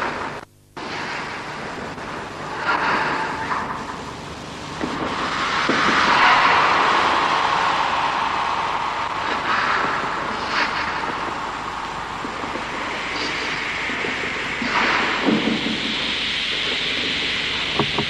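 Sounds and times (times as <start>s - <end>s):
wind-like rushing noise: 4.8s - 18.0s.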